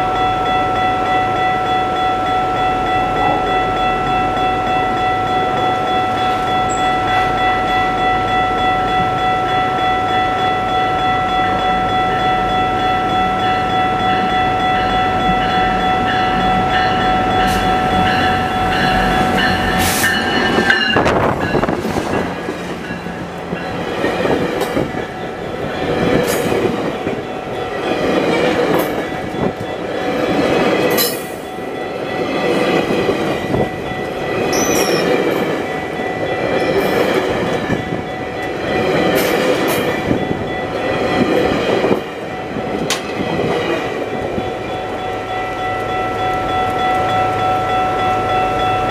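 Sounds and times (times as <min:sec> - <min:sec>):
train wheels rumbling and rattling: 0:13.2 - 0:47.4.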